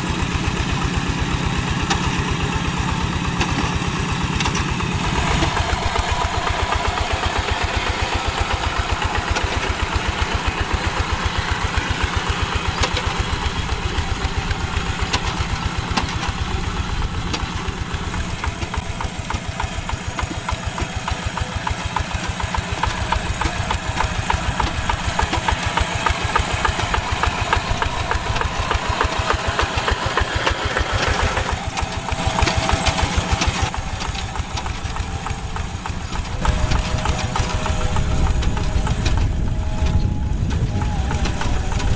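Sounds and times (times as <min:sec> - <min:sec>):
diesel engine chugging: 0:00.0 - 0:41.9.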